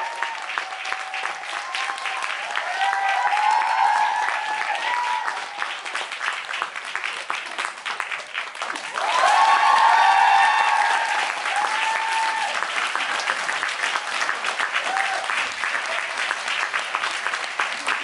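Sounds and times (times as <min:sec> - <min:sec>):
audience cheering: 0:00.0 - 0:06.1, 0:08.7 - 0:16.4
audience clapping: 0:00.0 - 0:18.0.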